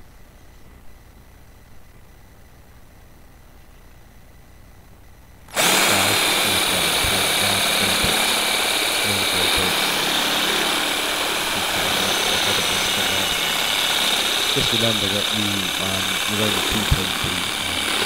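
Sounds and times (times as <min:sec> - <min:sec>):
cordless drill whining: 0:05.5 - 0:18.0.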